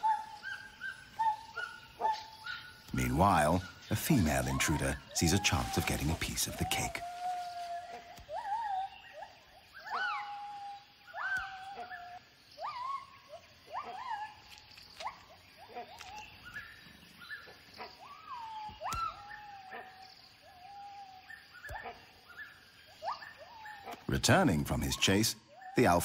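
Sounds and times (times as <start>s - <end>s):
gibbons whooping: 3.0s - 13.1s, 18.0s - 22.0s.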